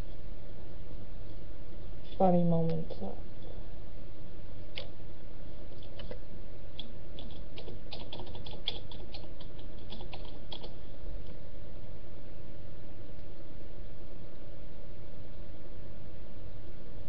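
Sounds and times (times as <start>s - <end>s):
faint hum: 0.0s - 17.0s
typing on computer keyboard: 7.2s - 10.8s.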